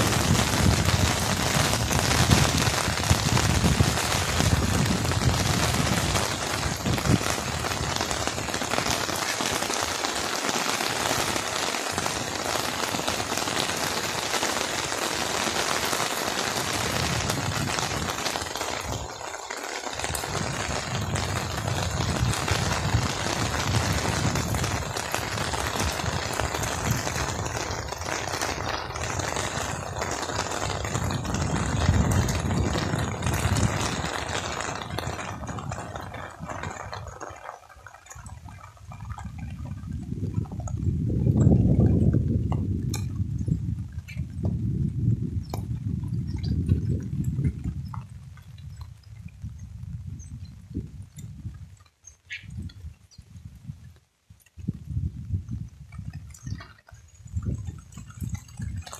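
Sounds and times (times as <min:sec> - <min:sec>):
steady rain on wet road: 0:00.0 - 0:58.9.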